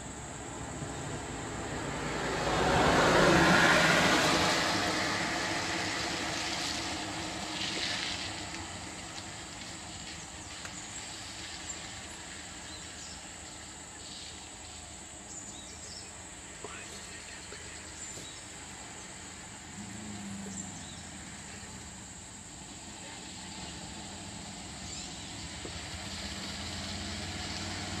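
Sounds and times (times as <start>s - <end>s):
vehicle passing on wet road: 0.4s - 28.0s.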